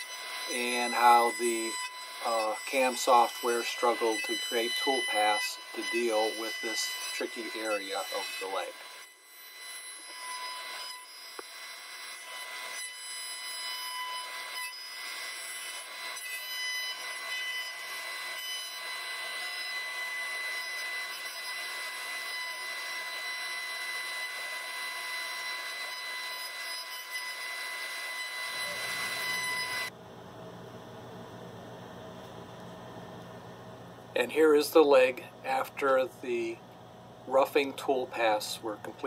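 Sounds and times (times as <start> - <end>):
bit cutting wood: 0.0 - 29.9
router spindle whine: 0.0 - 30.0.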